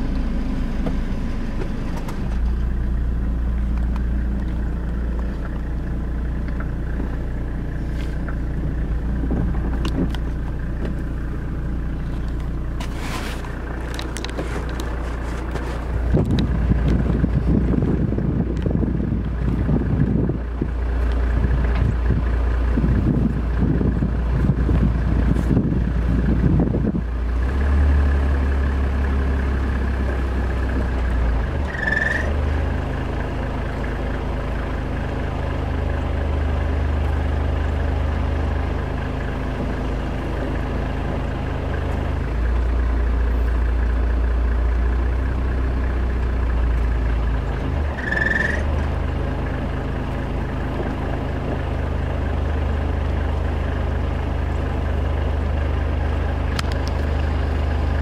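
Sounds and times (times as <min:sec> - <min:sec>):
car engine running at low revs: 0:00.0 - 0:58.0
short high-pitched chirps: 0:31.7 - 0:32.3, 0:48.0 - 0:48.6.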